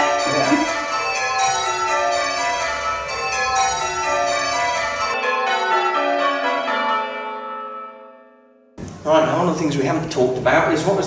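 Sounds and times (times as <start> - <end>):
church bells change ringing: 0.0 - 8.8.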